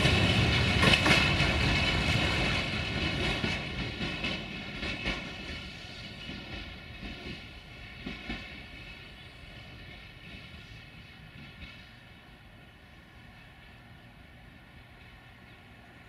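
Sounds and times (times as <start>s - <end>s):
train wheels knocking over rail joints: 0.0s - 10.5s
train rolling hum: 0.0s - 16.0s.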